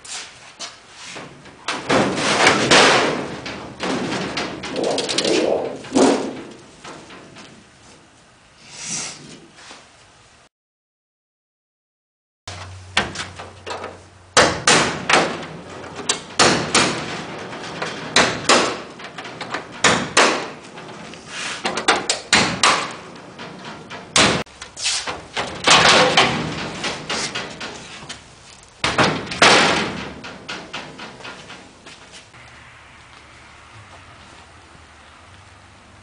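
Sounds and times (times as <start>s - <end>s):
metal sheet ringing and rattling: 1.2s - 7.8s, 12.5s - 32.4s.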